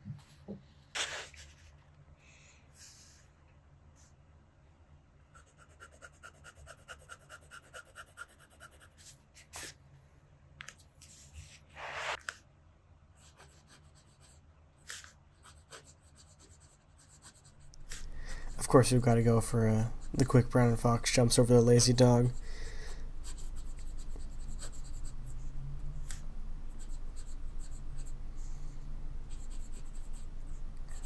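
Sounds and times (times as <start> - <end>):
pen nib scratching paper: 5.3 - 9.7, 13.2 - 31.0.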